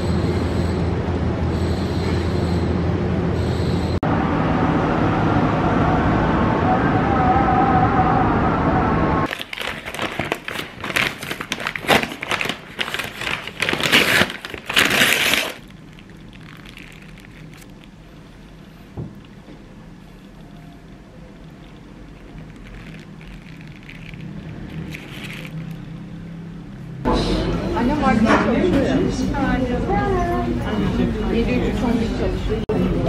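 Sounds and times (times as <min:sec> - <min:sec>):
paper bag rustling: 0:09.3 - 0:19.0, 0:21.4 - 0:25.8.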